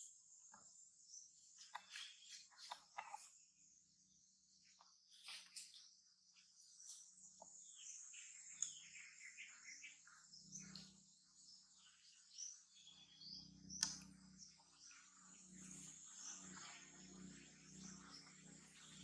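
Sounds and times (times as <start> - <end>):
bird chirps: 0.0 - 19.0
high-pitched insect drone: 14.4 - 19.0.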